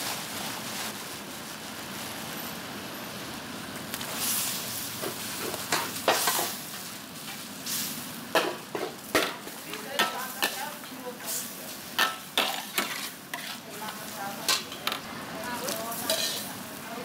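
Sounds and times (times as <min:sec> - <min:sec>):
food sizzling in a wok: 0:00.0 - 0:17.0
utensils scraping a metal wok: 0:05.1 - 0:07.9, 0:09.2 - 0:16.6.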